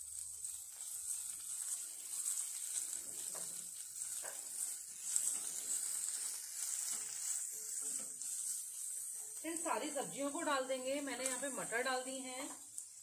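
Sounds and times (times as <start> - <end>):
onion sizzling in hot oil: 0.0 - 13.0
wooden spatula scraping pan: 0.8 - 9.6.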